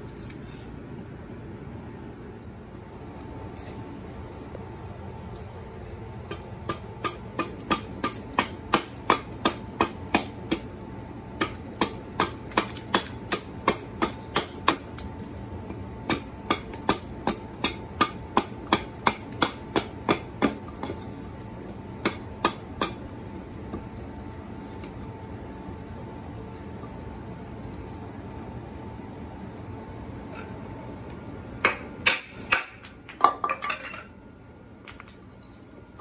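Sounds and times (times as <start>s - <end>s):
axe chopping wood: 6.3s - 10.7s, 11.4s - 15.2s, 16.0s - 21.0s.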